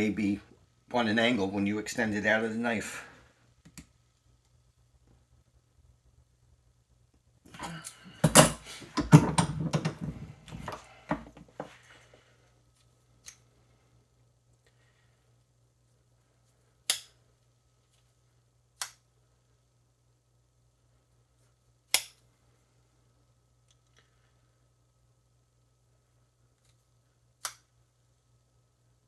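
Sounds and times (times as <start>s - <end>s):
metal tools clattering: 8.2s - 10.1s.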